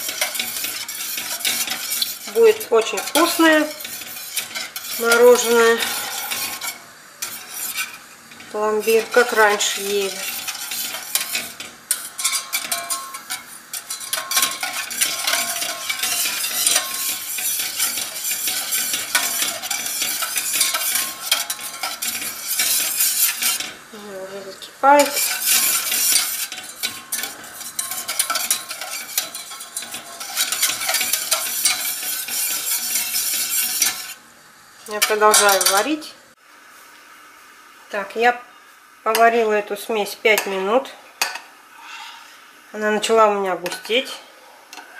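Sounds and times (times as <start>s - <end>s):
whisk scraping steel saucepan: 0.0s - 34.2s, 35.0s - 35.8s.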